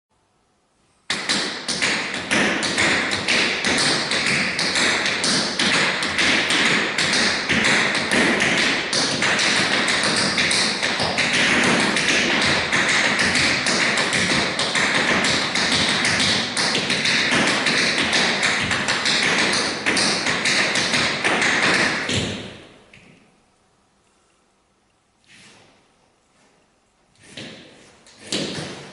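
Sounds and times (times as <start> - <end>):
tap shoes on wooden floor: 1.1 - 23.2.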